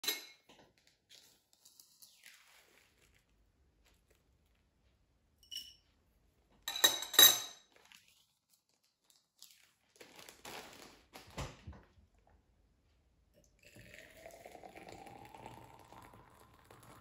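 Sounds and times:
spoon clinking on glass: 0.0 - 0.4, 5.4 - 5.8, 6.7 - 7.6
tea leaves rustling: 1.6 - 4.2.

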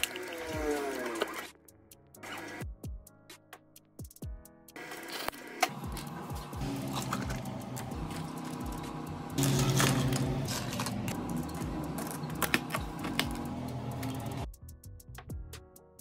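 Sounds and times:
steady machine hum: 5.7 - 14.4
ice cubes clinking into cups: 6.7 - 14.4.

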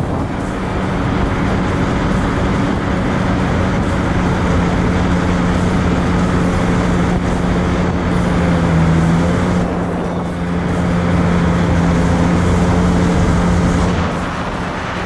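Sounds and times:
jet ski engine running: 0.0 - 15.0.

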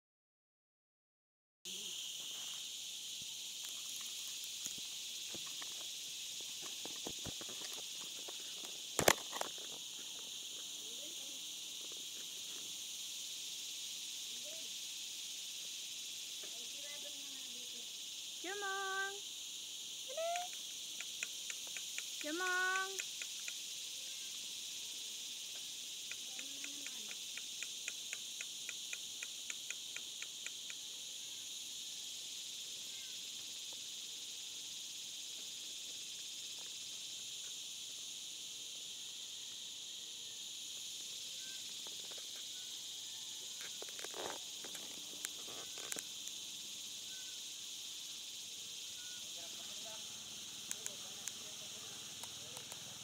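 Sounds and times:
insects droning: 1.7 - 53.0
sharp ticks: 20.1 - 23.7, 25.5 - 30.8, 50.4 - 53.0.

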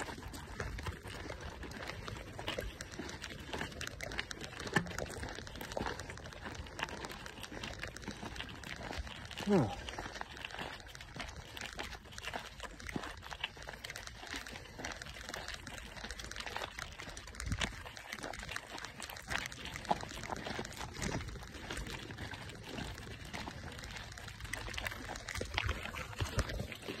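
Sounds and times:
tyres crunching over stones: 0.0 - 27.0
bike clicks and rattles: 1.8 - 9.0
wind rumble on microphone: 17.4 - 17.8.

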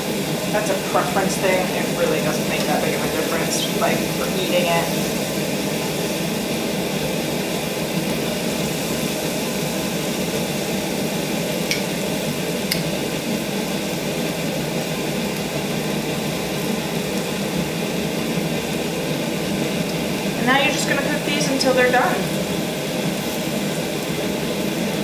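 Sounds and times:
kebabs sizzling on grill: 0.0 - 25.0
metal tongs clicking: 11.7 - 11.9, 12.7 - 12.9.

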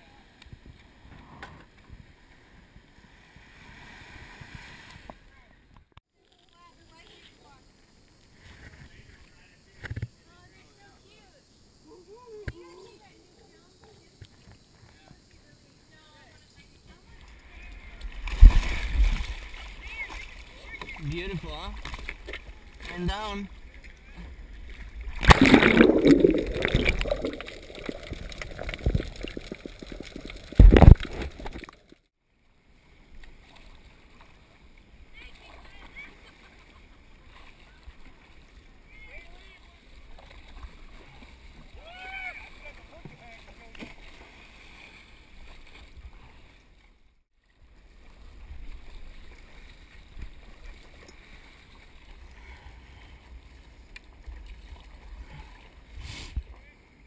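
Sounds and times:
underwater water sloshing: 17.2 - 32.0
paddle strokes in water: 32.4 - 57.0.

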